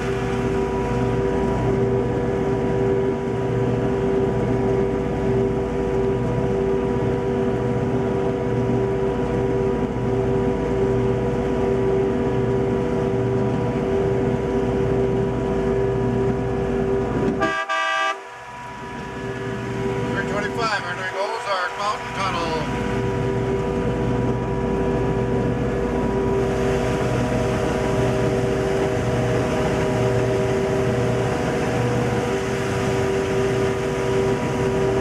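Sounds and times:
locomotive engine running: 0.0 - 35.0
locomotive horn: 17.3 - 20.5.

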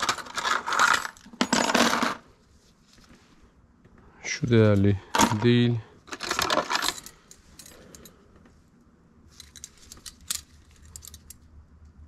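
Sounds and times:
metal jewelry clinking: 6.2 - 8.2, 9.3 - 11.5.

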